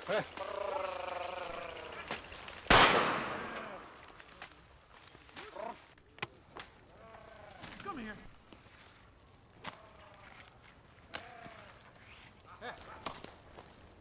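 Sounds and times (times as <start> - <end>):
gunshot with long echo: 2.7 - 3.9.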